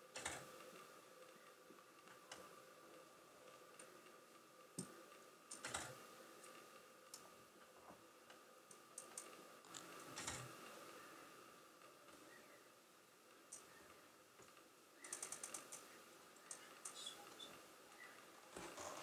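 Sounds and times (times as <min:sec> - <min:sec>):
faint clicks and ticks: 0:00.1 - 0:19.0.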